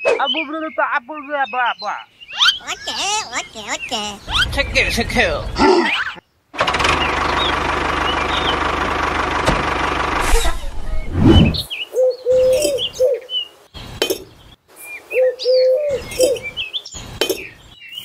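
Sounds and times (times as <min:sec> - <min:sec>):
birds chirping: 0:00.0 - 0:09.1, 0:10.2 - 0:18.0
engine running: 0:06.6 - 0:11.6
low cooing call: 0:11.9 - 0:13.3, 0:15.1 - 0:16.4.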